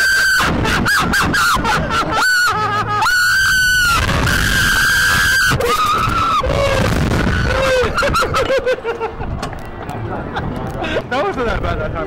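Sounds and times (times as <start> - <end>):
people screaming: 0.0 - 8.5.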